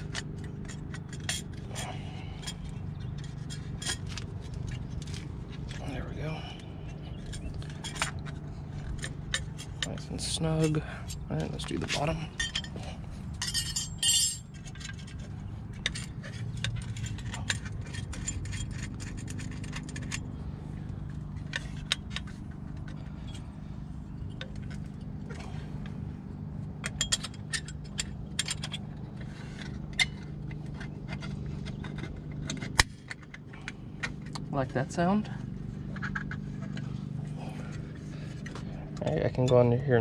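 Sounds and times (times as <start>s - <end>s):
metal scraping: 0.0s - 40.0s
light metallic clicks and clinks: 6.4s - 20.4s, 26.8s - 34.4s.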